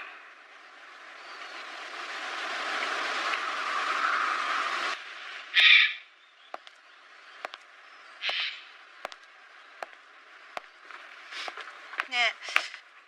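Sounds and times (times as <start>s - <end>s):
footsteps on stone paving: 6.6s - 6.8s, 7.4s - 7.7s, 8.3s - 10.0s, 10.6s - 12.8s.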